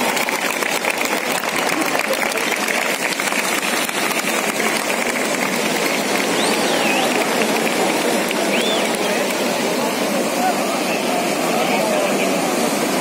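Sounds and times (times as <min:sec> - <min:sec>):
crowd applauding and cheering: 0:00.0 - 0:13.0
whistle: 0:06.4 - 0:07.3, 0:08.4 - 0:09.2.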